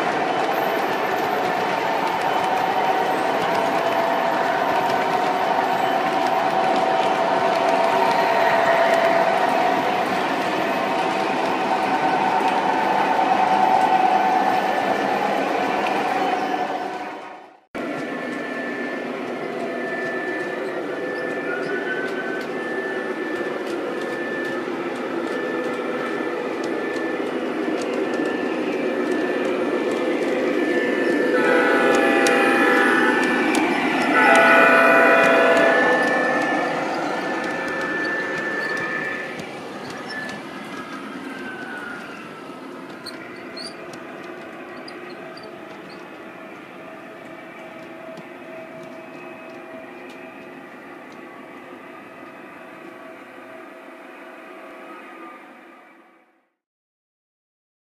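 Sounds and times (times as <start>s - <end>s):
model train rumbling on track: 0.0s - 17.1s, 17.8s - 55.4s
steady tones: 18.1s - 53.2s
small high squeaks: 42.9s - 46.3s.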